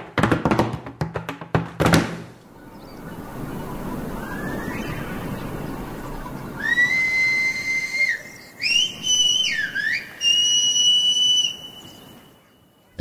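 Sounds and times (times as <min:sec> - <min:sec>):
man whistling: 0:06.5 - 0:12.5.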